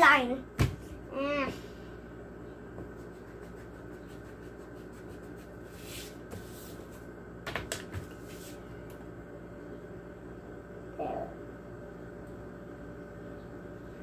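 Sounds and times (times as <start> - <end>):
steady low hum: 0.0 - 14.0
pencil scratching on paper: 3.0 - 6.7.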